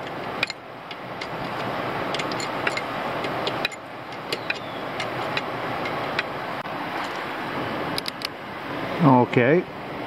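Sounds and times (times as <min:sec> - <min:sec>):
ratchet wrench clicking: 0:00.4 - 0:06.3.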